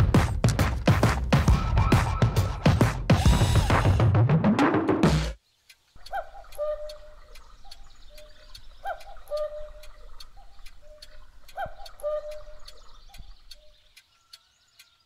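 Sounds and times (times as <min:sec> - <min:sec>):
clock ticking: 0:05.7 - 0:15.0
cuckoo clock calls: 0:06.0 - 0:15.0.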